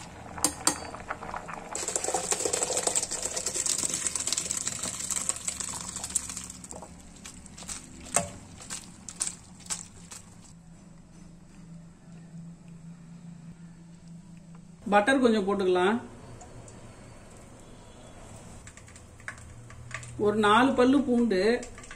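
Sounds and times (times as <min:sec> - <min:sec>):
water pouring into colander: 0:01.5 - 0:10.5
water dripping: 0:01.7 - 0:10.5.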